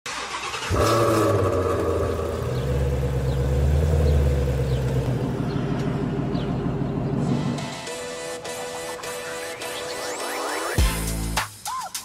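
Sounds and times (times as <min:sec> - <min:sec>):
low car engine rumble: 0:00.1 - 0:08.0.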